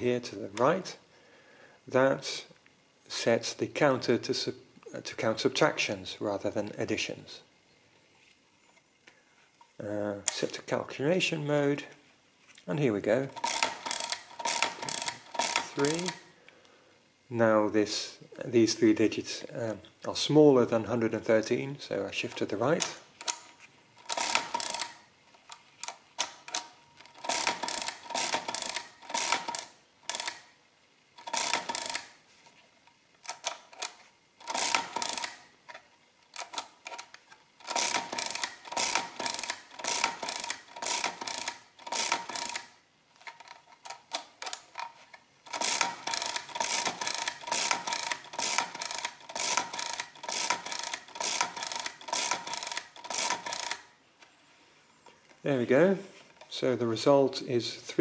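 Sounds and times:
calculator carriage shifting: 0:13.3 - 0:16.2, 0:22.3 - 0:30.4, 0:31.2 - 0:32.1, 0:33.2 - 0:53.9
mechanical calculator lever clattering: 0:13.3 - 0:16.2, 0:24.0 - 0:25.0, 0:25.8 - 0:30.4, 0:31.2 - 0:32.1, 0:33.3 - 0:35.4, 0:36.3 - 0:53.8.

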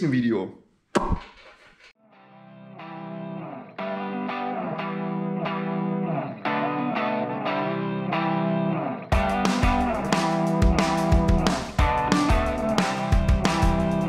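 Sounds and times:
distorted electric guitar chords: 0:02.2 - 0:14.0
drums: 0:09.1 - 0:14.0.

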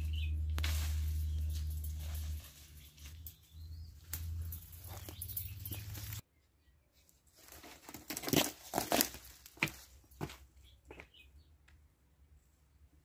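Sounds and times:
crunching dry leaves and twigs: 0:00.0 - 0:06.2, 0:07.3 - 0:10.3
leaves and twigs rustling: 0:00.0 - 0:06.2, 0:07.0 - 0:10.4.

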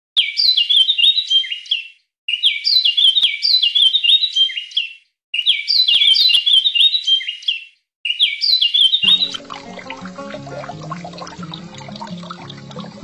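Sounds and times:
bird chirping: 0:00.2 - 0:13.0.

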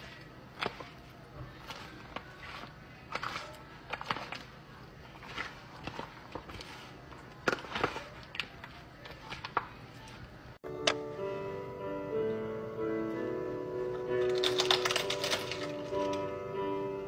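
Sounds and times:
spoon scraping foil pan: 0:00.0 - 0:09.5.

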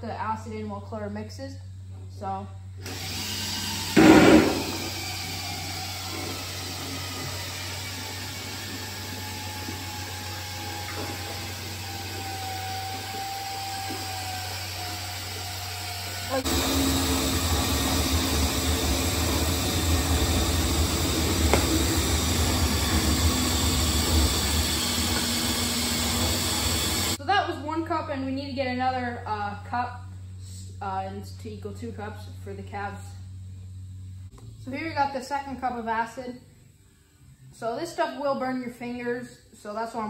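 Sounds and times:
electric drill turning mixer: 0:02.8 - 0:27.2.

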